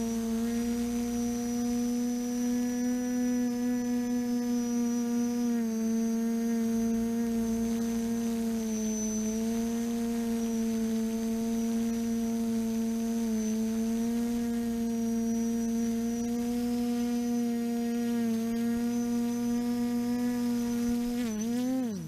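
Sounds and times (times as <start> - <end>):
drone motors humming: 0.0 - 22.0.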